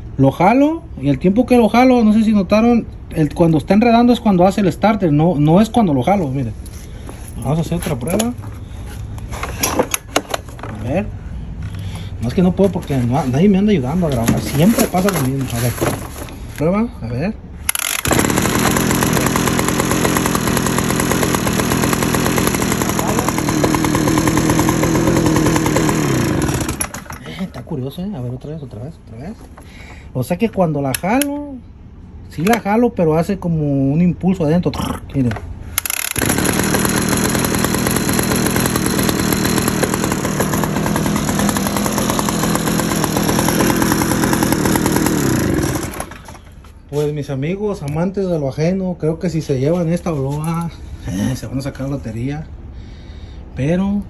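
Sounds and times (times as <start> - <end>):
leaf blower engine running: 17.7 - 27.7, 35.8 - 46.6.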